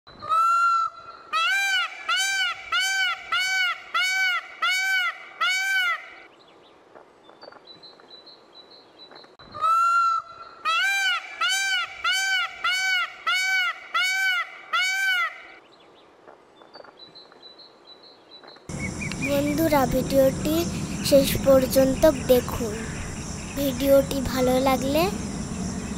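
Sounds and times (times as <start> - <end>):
peacock calling: 0.2 - 6.3, 9.5 - 15.6, 18.7 - 25.9.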